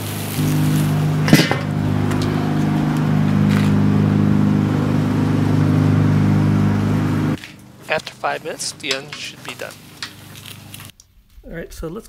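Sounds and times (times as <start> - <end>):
low humming drone: 0.0 - 10.9
metal grill lid clank: 1.1 - 2.3.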